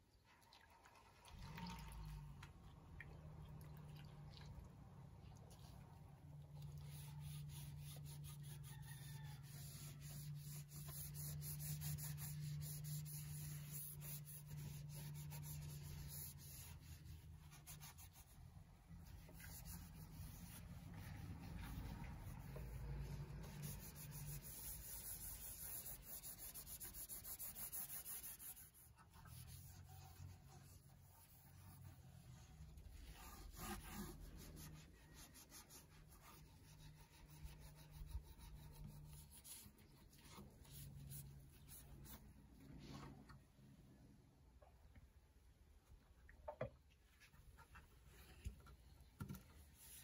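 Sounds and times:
cloth wiping wood: 0:06.8 - 0:18.4, 0:19.0 - 0:42.2.

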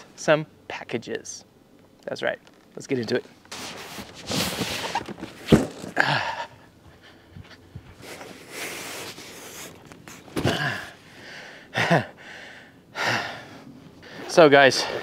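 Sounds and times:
cardboard box scraping and rustling: 0:03.5 - 0:06.0
man grunting: 0:06.0 - 0:06.5, 0:10.4 - 0:11.0.

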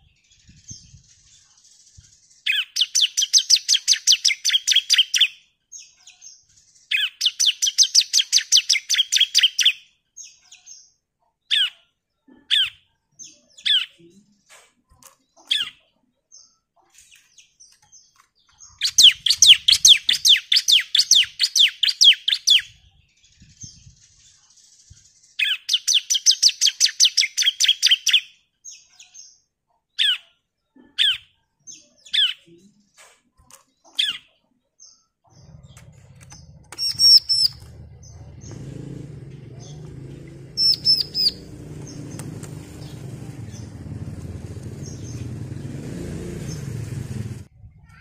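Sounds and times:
bird trilling: 0:18.7 - 0:22.7, 0:35.3 - 0:46.6
bird call notes: 0:35.7 - 0:38.7, 0:39.6 - 0:43.7.

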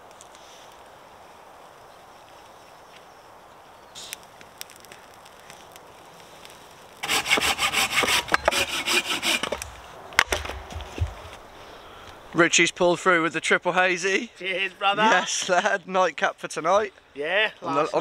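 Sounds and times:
hand saw cutting wood: 0:07.0 - 0:09.7.

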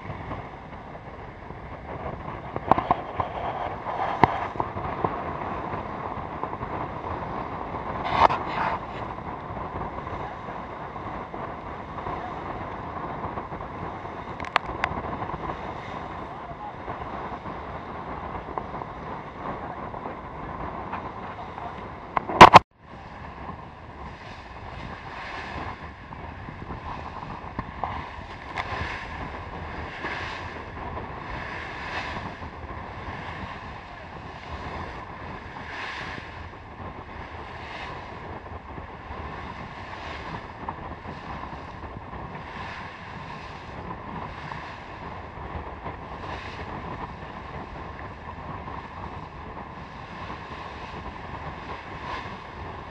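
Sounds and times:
water rushing along hull: 0:00.0 - 0:52.9
wind buffeting microphone: 0:00.0 - 0:52.9
surges of spray: 0:24.0 - 0:38.3.

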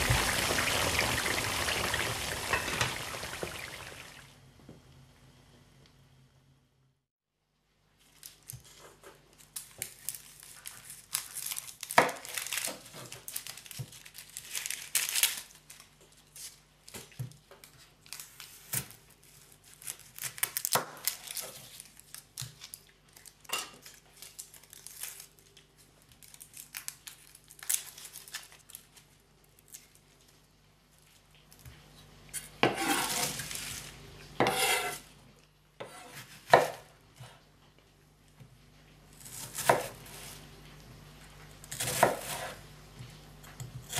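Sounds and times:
onion skin crackling and tearing: 0:08.0 - 0:30.4, 0:39.1 - 0:40.5.

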